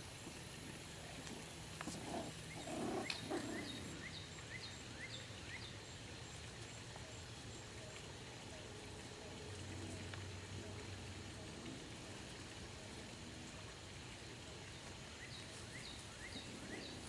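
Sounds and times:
puppies growling: 1.1 - 4.2.

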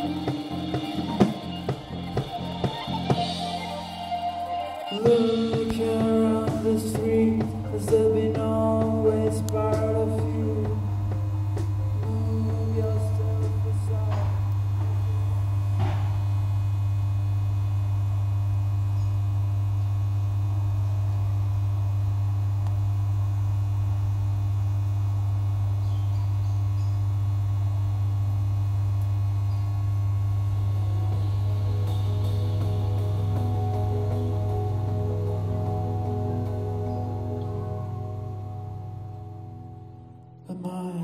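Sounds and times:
low electronic drone: 0.0 - 40.8
faint higher tones: 29.1 - 40.5.

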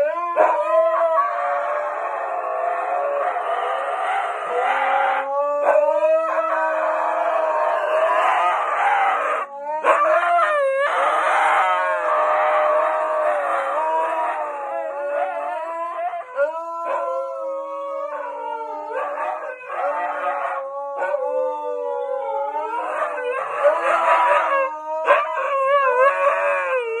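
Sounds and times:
dogs howling: 0.0 - 27.0.

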